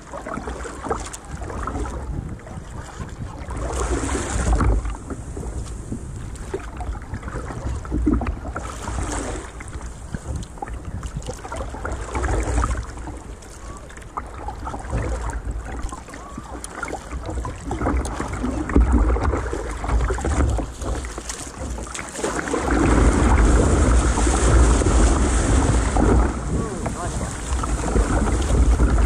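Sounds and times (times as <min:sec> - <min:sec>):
surf rushing: 0:00.0 - 0:10.7, 0:11.5 - 0:29.0
water slapping against kayak hull: 0:00.0 - 0:29.0
wind rumbling on microphone: 0:00.0 - 0:29.0.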